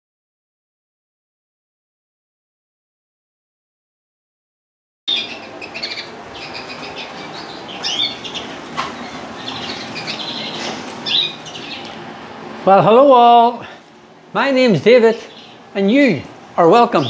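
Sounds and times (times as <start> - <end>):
caged birds chirping: 5.1 - 17.0
steady background hiss: 5.1 - 17.0.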